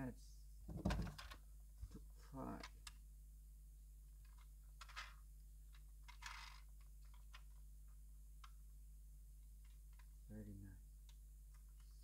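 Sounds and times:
low steady hum: 0.0 - 12.0
plastic toy clicks and rubs: 6.0 - 7.5.

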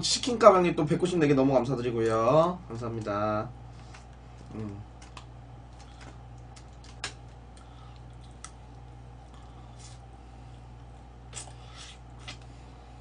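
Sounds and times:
low electrical hum: 0.0 - 13.0
person humming: 4.5 - 4.9.

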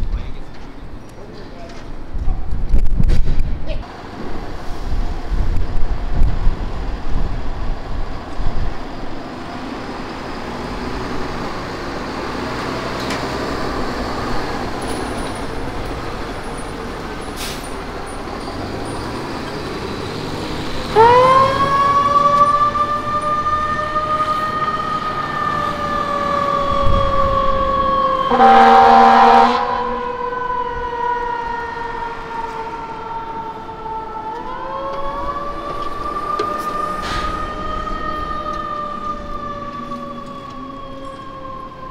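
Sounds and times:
mechanical siren wailing: 20.8 - 41.9
loud horn blast: 28.2 - 30.6.

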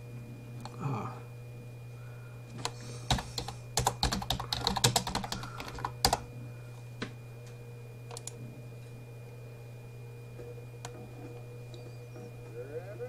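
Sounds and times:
low electrical hum: 0.0 - 13.0
typing on computer keyboard: 3.1 - 6.2, 8.1 - 8.3.

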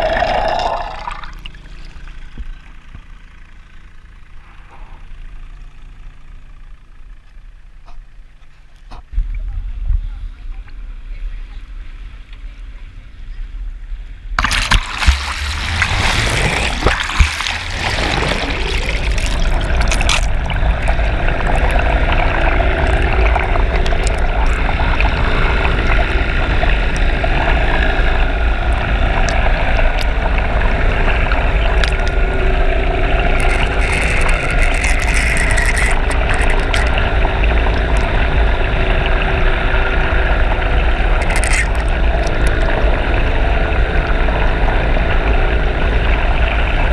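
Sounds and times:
water splashing and churning: 0.0 - 3.0, 14.4 - 46.9
boat engine drone underwater: 0.0 - 46.9.

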